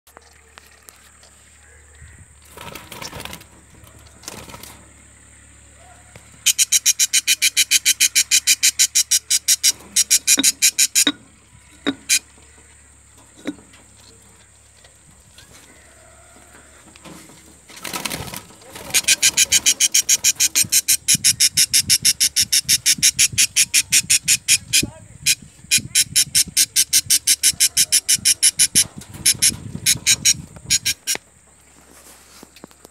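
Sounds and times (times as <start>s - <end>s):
budgerigar harsh repeated calls: 6.4s - 12.3s, 18.8s - 31.2s
handling rustle: 31.1s - 32.9s.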